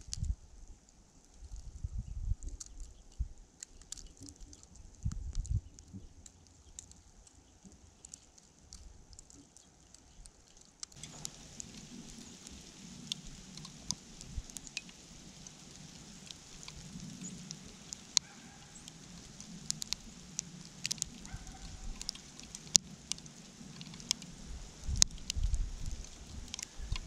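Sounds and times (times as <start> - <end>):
precipitation ticking: 7.6 - 27.0
outdoor hiss: 11.0 - 27.0.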